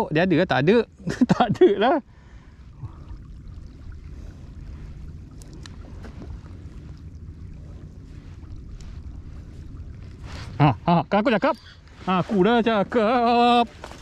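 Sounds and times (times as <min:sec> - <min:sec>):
water lapping at hull: 0:00.0 - 0:14.0
wind rumble on microphone: 0:02.6 - 0:14.0
faint ticks: 0:05.2 - 0:07.2.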